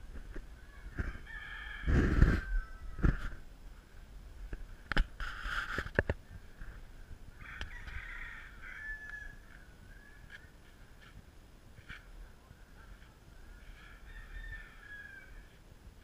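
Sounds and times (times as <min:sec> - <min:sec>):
rooster crowing: 0:00.7 - 0:03.2, 0:07.4 - 0:10.2, 0:13.5 - 0:15.6.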